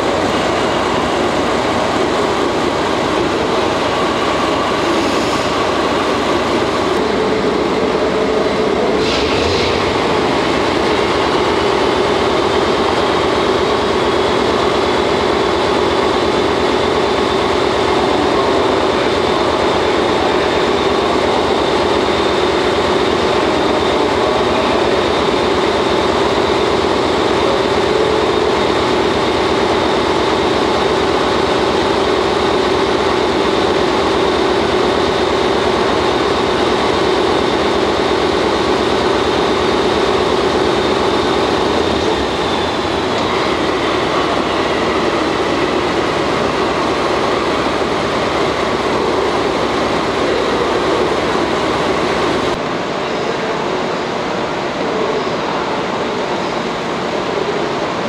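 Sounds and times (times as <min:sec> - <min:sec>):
diesel locomotive idling: 0:00.0 - 0:58.0.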